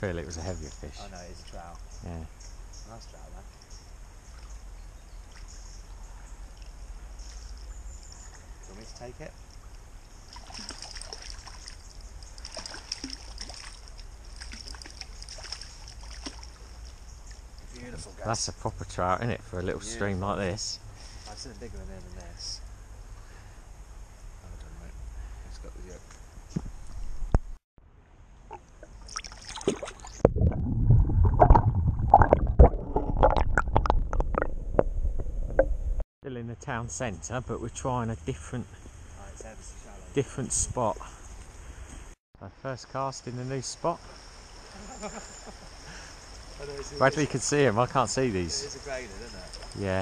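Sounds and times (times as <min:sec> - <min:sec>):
stream water rippling: 0:04.0 - 0:18.2, 0:28.4 - 0:34.5, 0:43.8 - 0:50.0
small water splashes: 0:10.2 - 0:17.8, 0:28.9 - 0:30.6
muffled underwater stream rumble: 0:30.1 - 0:36.0.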